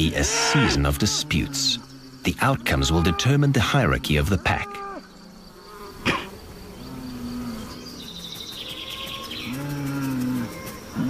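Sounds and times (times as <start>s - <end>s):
insects buzzing: 0.0s - 11.0s
bulls lowing: 6.8s - 11.0s.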